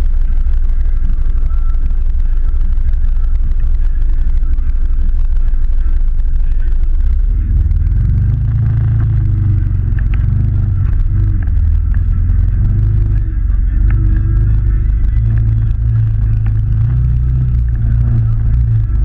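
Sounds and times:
off-road vehicle engine revving: 0:06.9 - 0:19.0.

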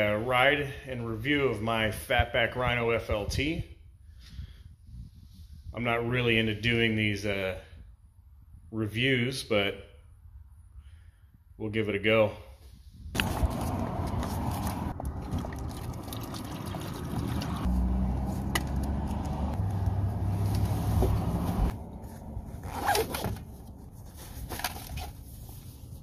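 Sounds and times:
water sloshing in plastic bladder: 0:14.4 - 0:17.6
backpack rustling and clicks: 0:18.3 - 0:26.0.

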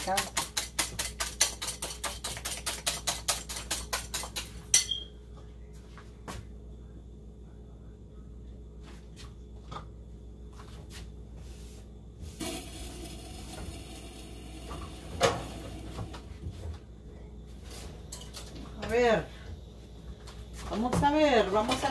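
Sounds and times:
cookware and utensils clattering: 0:00.0 - 0:05.1, 0:18.1 - 0:18.8.

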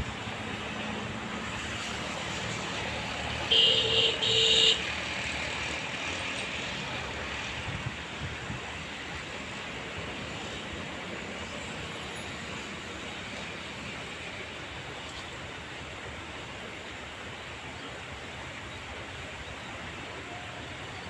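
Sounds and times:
locomotive horn blasts: 0:03.5 - 0:04.8.

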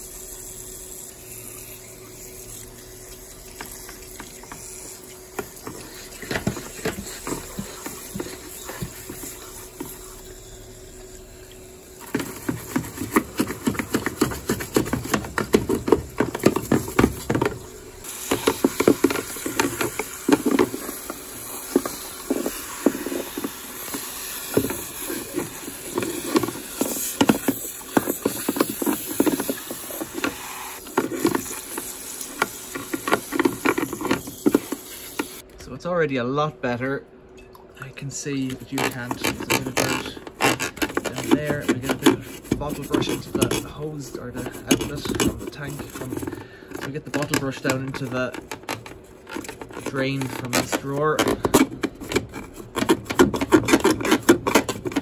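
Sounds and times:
water jet hissing and splashing: 0:00.0 - 0:35.4.

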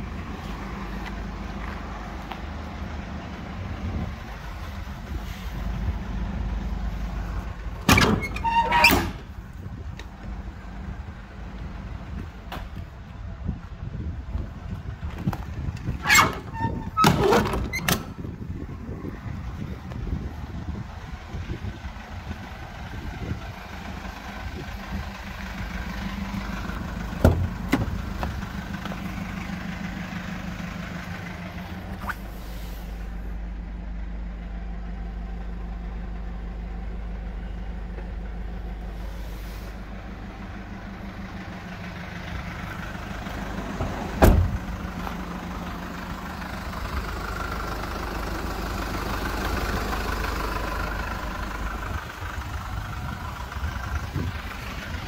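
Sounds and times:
diesel engine idling: 0:00.0 - 0:55.0
van door shutting: 0:07.8 - 0:09.4, 0:15.8 - 0:18.3, 0:27.1 - 0:28.5, 0:43.8 - 0:44.8.

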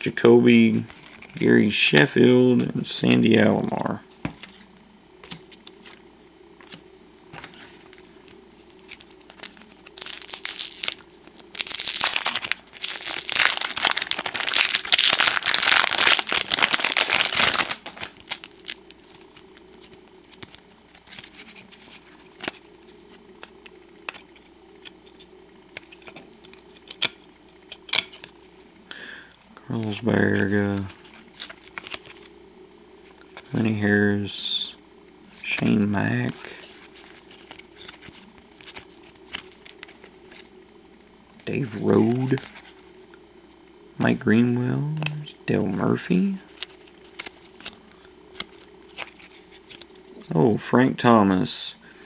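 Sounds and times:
cards being handled: 0:00.7 - 0:06.0, 0:06.6 - 0:28.6, 0:29.8 - 0:32.4, 0:35.3 - 0:40.6, 0:41.4 - 0:43.0, 0:46.5 - 0:50.3
wrapper crinkling and tearing: 0:08.8 - 0:22.6, 0:46.5 - 0:49.9.

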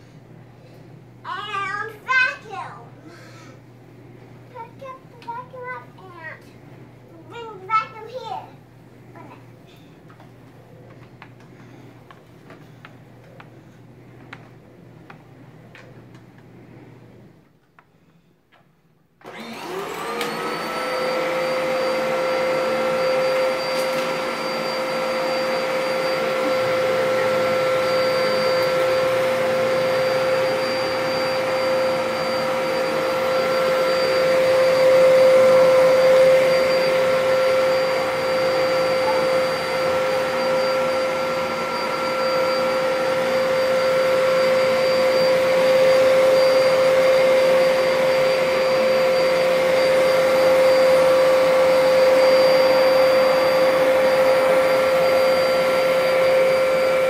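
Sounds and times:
vacuum cleaner motor humming: 0:19.2 - 0:57.0.

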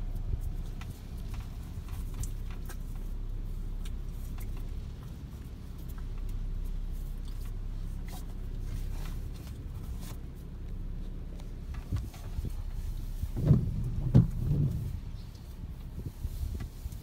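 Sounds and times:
light ticks: 0:00.0 - 0:12.8
car road noise: 0:00.0 - 0:17.0
gusty hurricane wind: 0:11.2 - 0:17.0.

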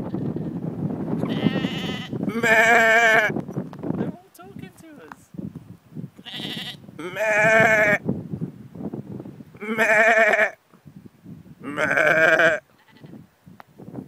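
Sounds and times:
wavering bleats: 0:01.2 - 0:03.3, 0:06.2 - 0:08.0, 0:09.6 - 0:10.6, 0:11.6 - 0:13.2.

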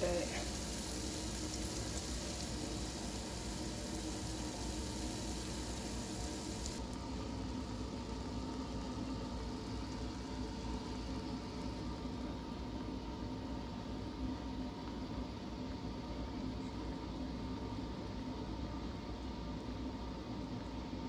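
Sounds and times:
oil sizzling in deep fryer: 0:00.0 - 0:16.4
steady hum: 0:00.0 - 0:21.0.

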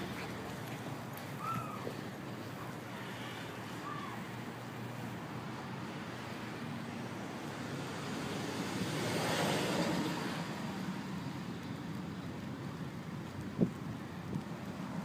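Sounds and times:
rushing outdoor background noise: 0:00.0 - 0:15.0.

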